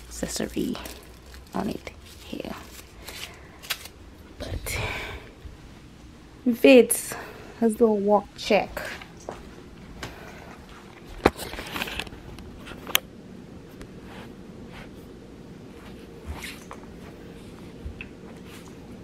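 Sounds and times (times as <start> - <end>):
soft footsteps on carpet: 8.8 - 11.2
camera handling rustles: 11.0 - 13.0.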